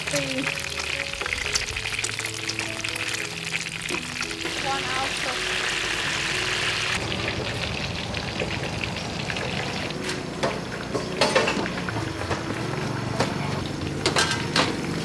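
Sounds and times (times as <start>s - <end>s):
oil sizzling: 0.0s - 15.0s.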